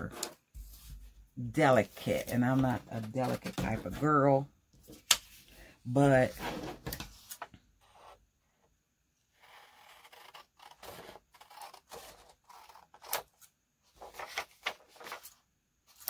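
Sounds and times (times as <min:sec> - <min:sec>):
paper rustling and crackling: 0:11.4 - 0:16.0.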